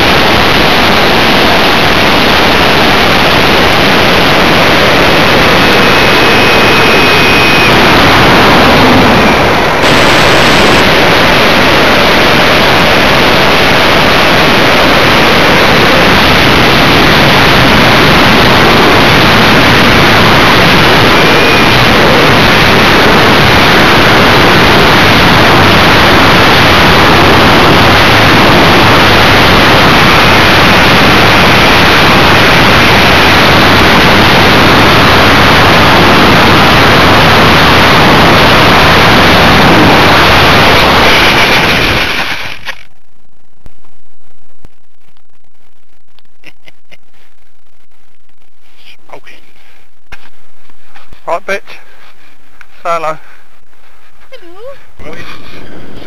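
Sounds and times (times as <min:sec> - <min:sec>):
model jet rushing hiss: 0:09.8 - 0:12.5.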